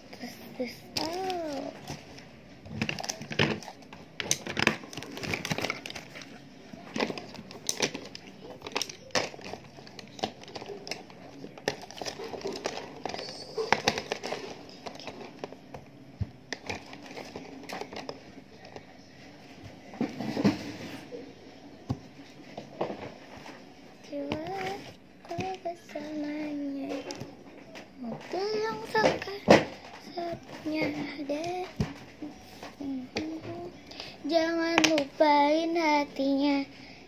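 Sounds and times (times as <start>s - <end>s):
rustling and crinkling: 0.6s - 21.2s, 21.8s - 36.7s
clicks and knocks of small objects: 2.7s - 15.8s.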